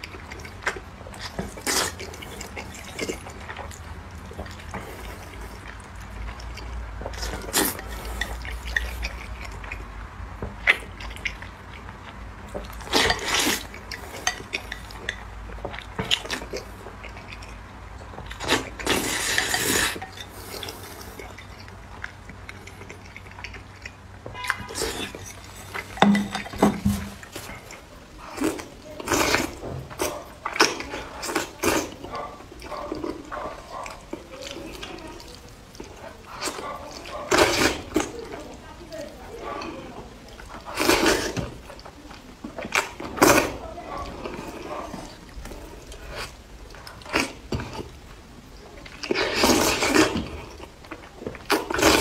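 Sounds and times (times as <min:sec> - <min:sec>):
wet chewing: 0:00.0 - 0:52.0
slurping noodles: 0:12.8 - 0:14.7, 0:18.4 - 0:21.3, 0:40.4 - 0:41.8, 0:49.0 - 0:50.7, 0:51.4 - 0:52.0.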